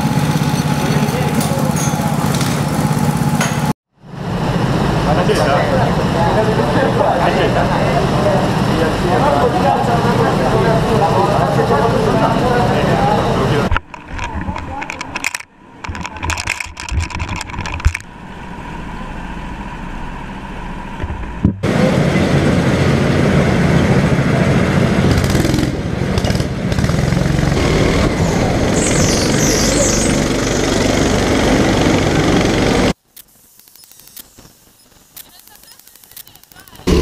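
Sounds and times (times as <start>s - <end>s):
kart engine running hard: 0.0s - 13.7s, 21.7s - 33.0s
voices: 0.8s - 2.4s, 5.0s - 15.3s, 35.1s - 37.0s.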